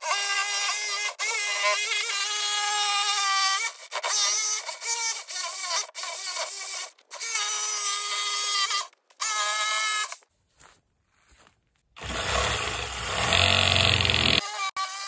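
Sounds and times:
power saw cutting wood: 12.0 - 15.0.

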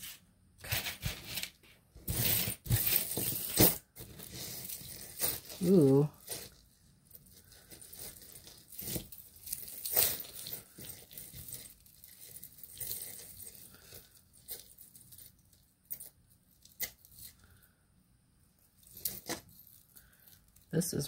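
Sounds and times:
metal charms and chain clinking: 7.4 - 17.4, 18.8 - 20.7.

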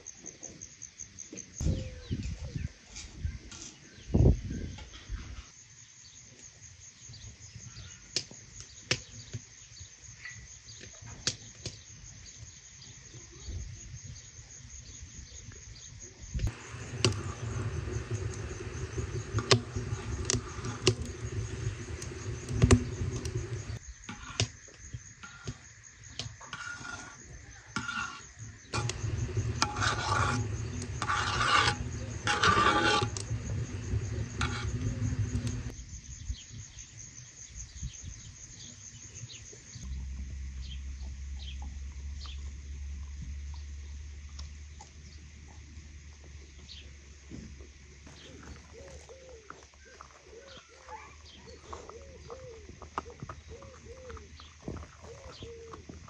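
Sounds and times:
insects chirring: 4.0 - 56.0
metal spoon scraping metal basin: 16.4 - 24.3, 26.5 - 27.2, 27.8 - 35.7.

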